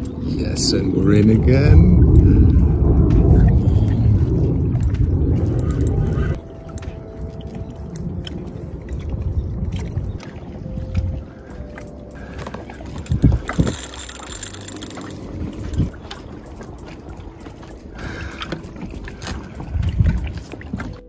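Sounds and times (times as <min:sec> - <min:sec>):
wind gusting over microphone: 0:00.0 - 0:06.6, 0:12.2 - 0:17.4, 0:18.0 - 0:21.0
water splashing and knocking: 0:02.0 - 0:21.0.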